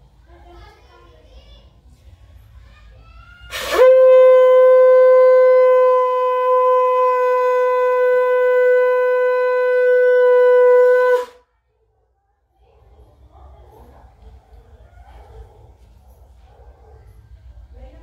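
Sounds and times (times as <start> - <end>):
conch shell blown long note: 3.5 - 11.4.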